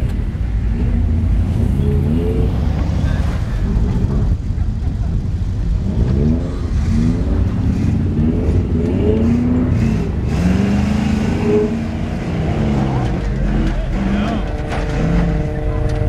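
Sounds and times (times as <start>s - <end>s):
pickup truck engine revving hard: 5.7s - 16.0s.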